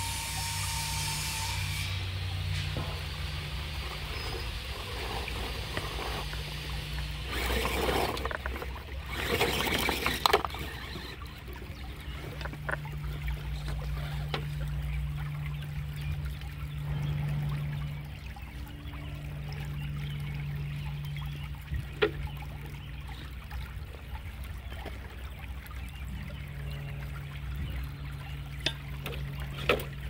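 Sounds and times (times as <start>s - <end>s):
rc car motor humming: 0.0s - 15.0s.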